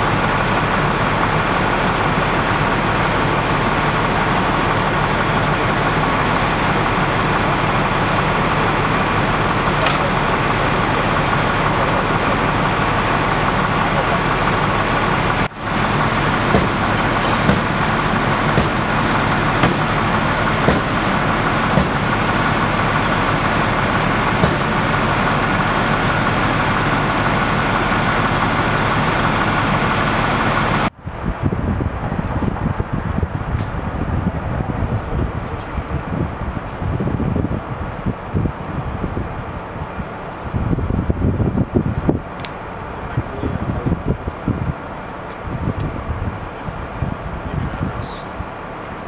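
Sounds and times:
constant whine: 0.0s - 49.0s
large vehicle engine running: 0.0s - 49.0s.

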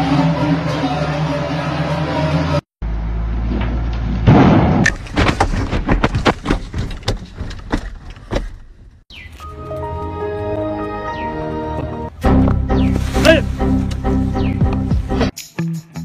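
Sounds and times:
sharp knocks and thumps: 3.5s - 9.0s.

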